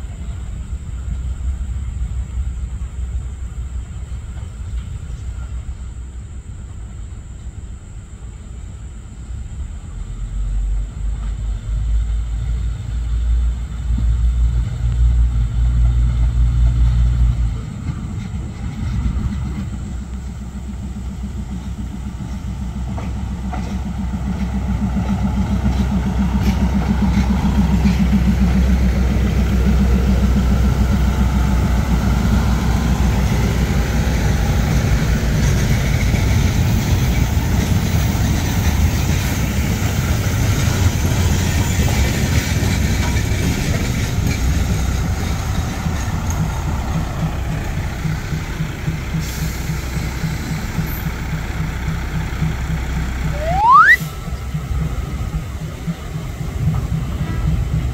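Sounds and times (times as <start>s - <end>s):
train rumbling past: 0.0s - 57.9s.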